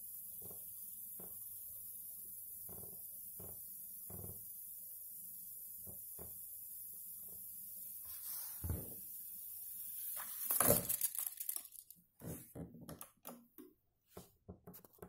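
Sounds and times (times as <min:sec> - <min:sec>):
tape deck fast-winding hiss: 0:00.0 - 0:11.9.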